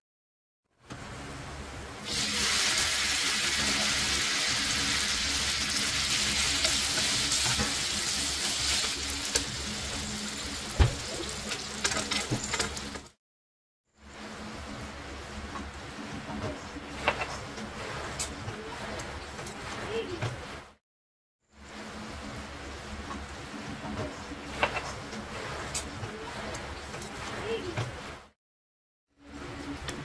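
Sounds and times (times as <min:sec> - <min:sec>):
spaghetti sizzling in a frying pan: 0:02.0 - 0:13.1.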